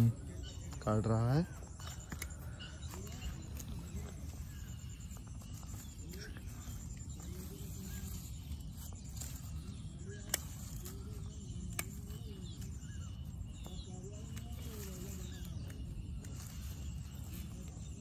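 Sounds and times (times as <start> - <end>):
faint bird chirps: 0.0 - 18.0
pruning secateurs snipping: 7.9 - 17.8.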